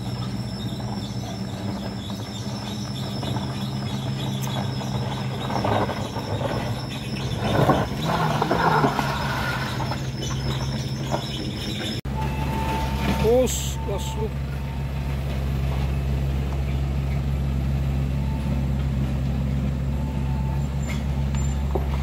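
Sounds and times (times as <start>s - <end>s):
car engine running: 0.0s - 12.3s
tyres grinding over gravel: 0.0s - 22.0s.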